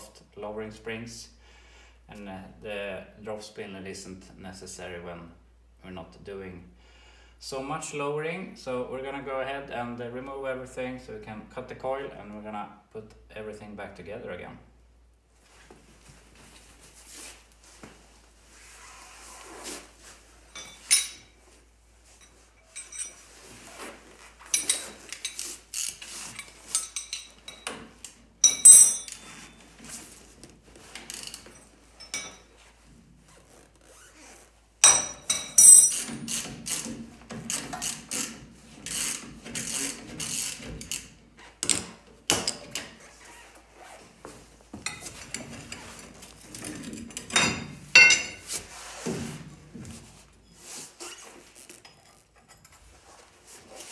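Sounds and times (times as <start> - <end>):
ratchet and wrenches clanking on bolts: 20.5 - 21.4, 22.1 - 23.4, 24.4 - 29.7, 31.0 - 32.5, 34.8 - 43.0, 44.8 - 48.5
ringing metal strikes: 28.4 - 29.2.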